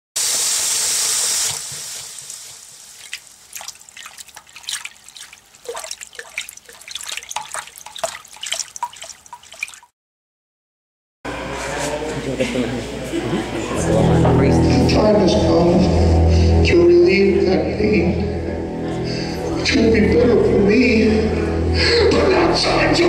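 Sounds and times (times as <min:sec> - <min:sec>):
water dripping and bubbling: 0:02.2 - 0:09.9.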